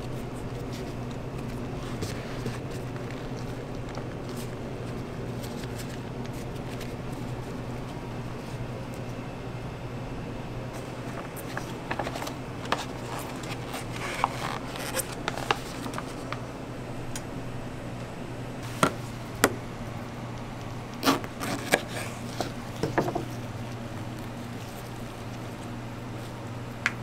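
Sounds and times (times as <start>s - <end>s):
food handling clicks and knocks: 21.0s - 23.5s.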